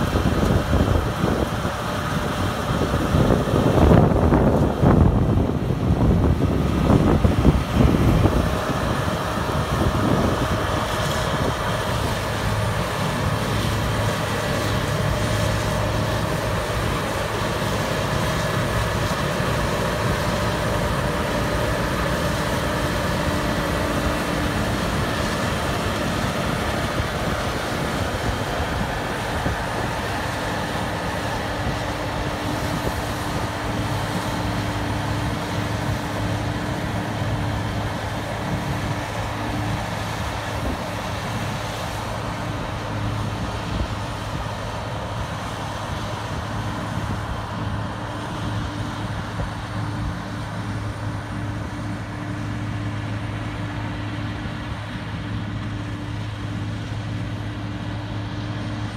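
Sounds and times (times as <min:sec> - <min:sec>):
wind buffeting microphone: 0:00.0 - 0:45.2
combine harvester drone: 0:00.0 - 0:58.9
machinery whine: 0:00.0 - 0:58.9.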